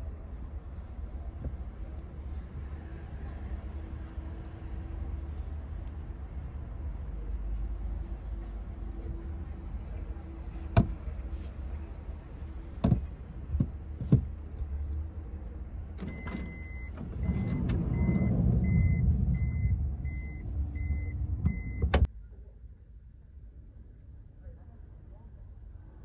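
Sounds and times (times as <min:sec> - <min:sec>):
engine rumble: 0:00.0 - 0:26.0
reversing beeper: 0:16.3 - 0:21.9.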